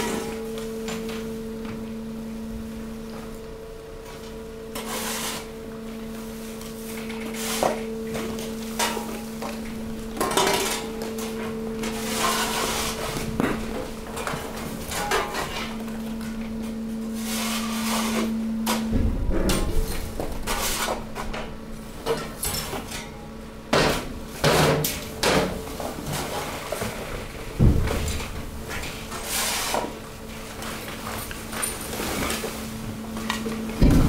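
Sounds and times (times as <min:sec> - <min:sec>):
hydraulic press humming: 0:09.0 - 0:25.7, 0:33.0 - 0:34.0.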